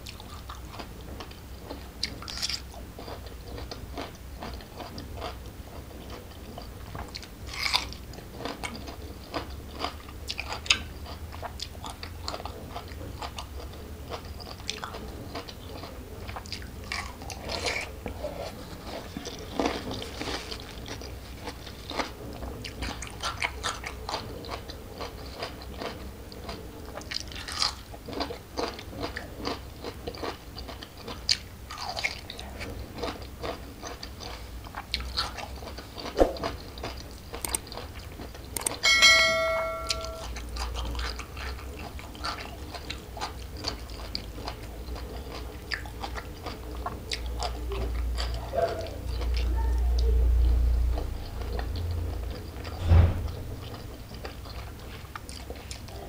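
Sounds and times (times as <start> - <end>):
crunching raw vegetable: 2.0 - 3.2, 7.2 - 11.2, 27.0 - 30.8.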